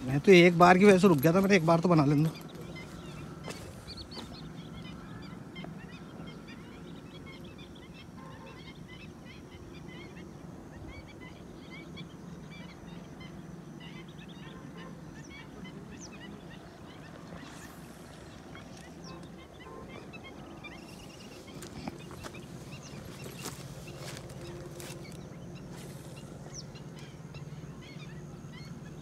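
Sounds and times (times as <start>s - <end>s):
birds chirping: 0.0s - 29.0s
steady low hum: 0.0s - 29.0s.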